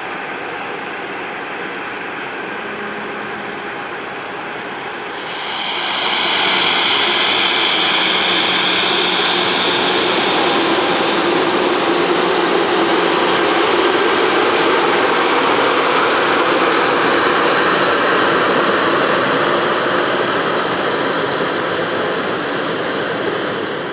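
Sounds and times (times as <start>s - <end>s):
high jet whine: 1.8s - 23.9s
jet engine rush: 5.1s - 23.9s.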